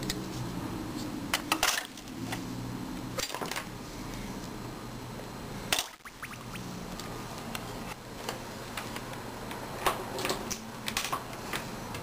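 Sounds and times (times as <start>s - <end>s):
low steady hum: 0.0s - 8.7s.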